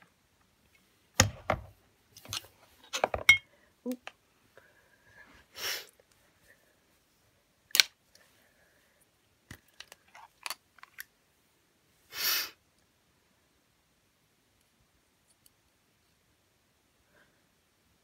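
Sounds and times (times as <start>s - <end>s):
short breathy hisses: 5.5s - 5.9s, 12.1s - 12.6s.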